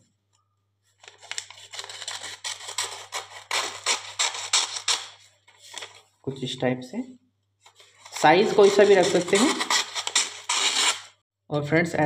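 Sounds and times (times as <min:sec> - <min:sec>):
scissors cutting paper: 0:01.0 - 0:06.0, 0:07.7 - 0:11.2.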